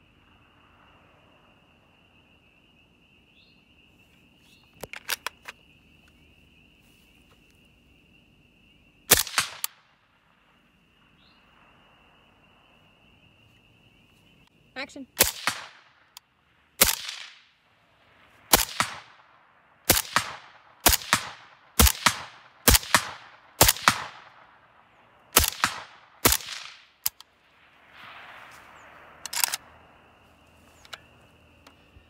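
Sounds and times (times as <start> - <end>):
suppressed rifle shots: 9.1 - 10.0, 15.2 - 16.1, 16.8 - 17.5, 18.5 - 19.3, 19.9 - 24.6, 25.3 - 27.2.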